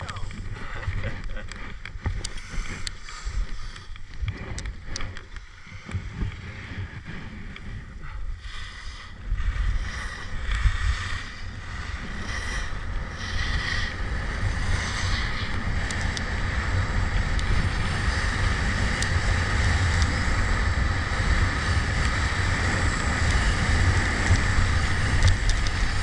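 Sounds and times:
clicks of skis and poles: 0:00.0 - 0:08.0
wind rumbling on microphone: 0:00.0 - 0:26.0.

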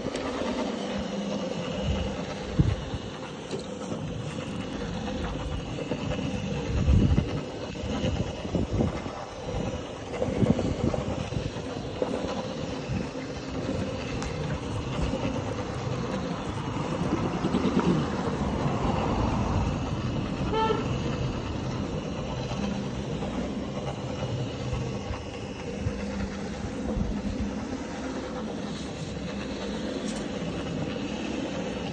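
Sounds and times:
floor scrubber motor hum: 0:00.0 - 0:31.9.

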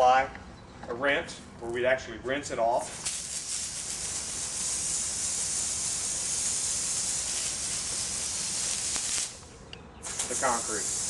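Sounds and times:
water spraying on concrete: 0:02.8 - 0:09.4, 0:10.0 - 0:11.0.

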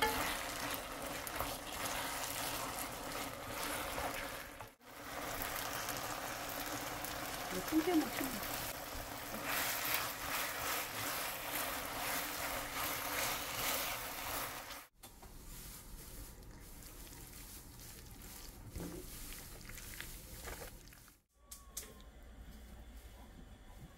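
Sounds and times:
wooden spoon scraping: 0:00.0 - 0:04.8, 0:07.9 - 0:21.2
seaweed sizzling in a wok: 0:00.0 - 0:16.0.

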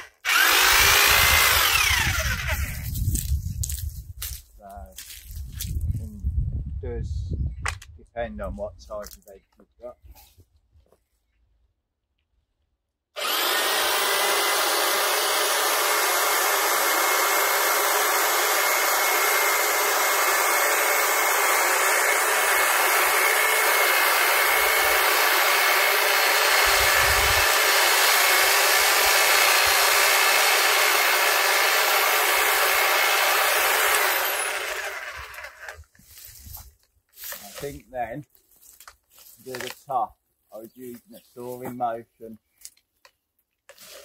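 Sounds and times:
hedge trimmer running: 0:00.0 - 0:03.8, 0:13.2 - 0:36.2.

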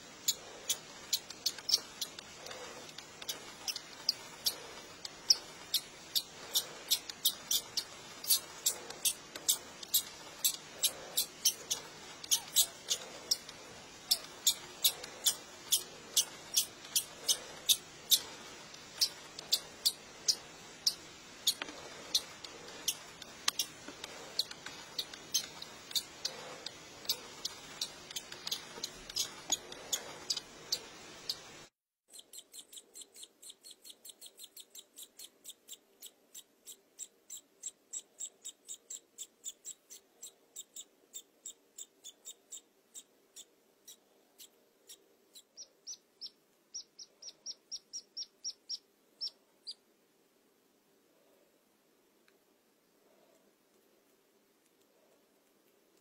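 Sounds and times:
chick peeping: 0:45.3 - 0:49.8.

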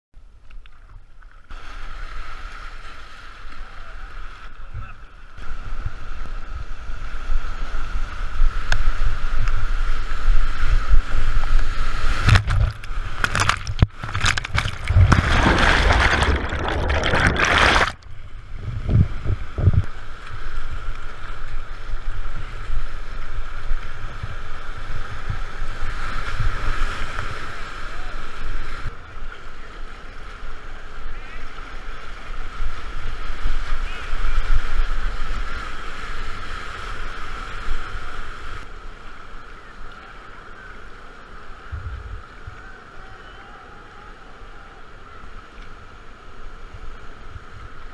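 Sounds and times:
microphone rumble: 0:10.8 - 0:20.0
whitewater rushing and splashing: 0:11.0 - 0:18.0
water crashing: 0:11.1 - 0:20.8.

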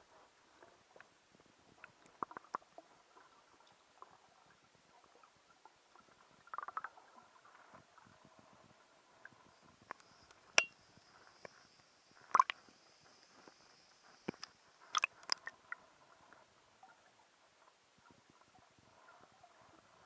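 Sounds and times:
water splashing: 0:14.9 - 0:15.8.

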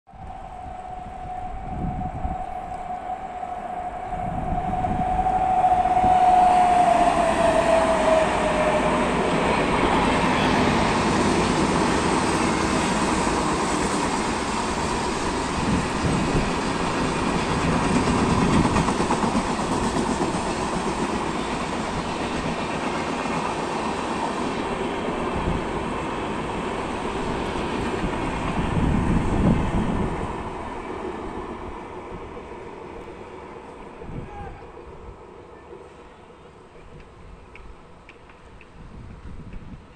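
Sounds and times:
train horn: 0:00.1 - 0:11.0
train wheel clatter: 0:09.6 - 0:25.6.

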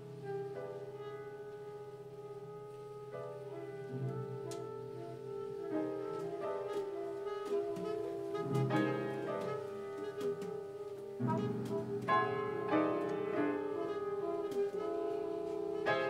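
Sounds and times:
upright piano: 0:00.0 - 0:16.0
wind instruments holding long notes: 0:03.5 - 0:16.0.

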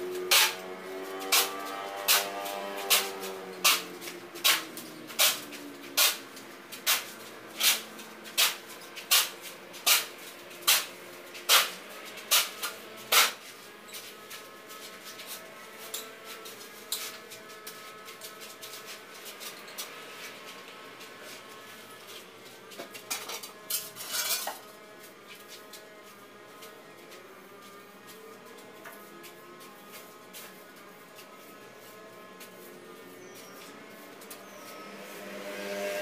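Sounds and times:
shovel scraping concrete floor: 0:00.1 - 0:21.4, 0:22.1 - 0:25.7.

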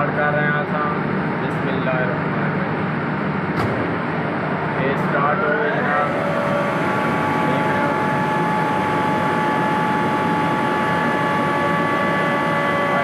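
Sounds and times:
air compressors droning: 0:00.0 - 0:13.0.

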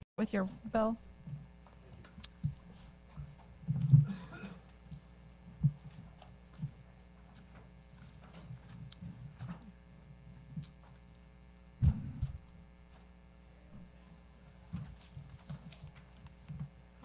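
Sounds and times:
electrical hum: 0:00.2 - 0:17.0
low thump: 0:11.8 - 0:12.4.

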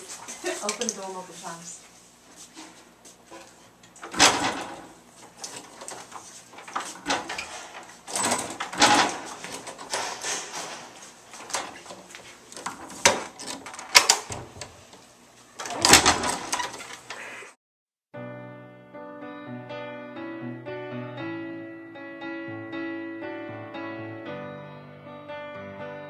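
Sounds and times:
door opening and shutting: 0:04.0 - 0:17.4.

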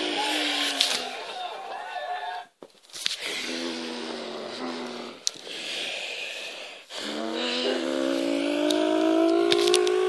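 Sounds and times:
person making race car sounds: 0:00.0 - 0:01.3, 0:06.9 - 0:10.0.

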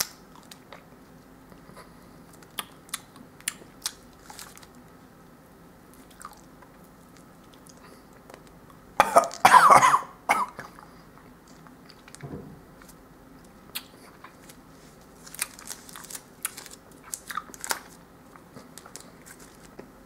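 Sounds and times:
person chewing: 0:05.9 - 0:09.4, 0:13.7 - 0:19.9
cough-like throat noise: 0:09.0 - 0:10.7.

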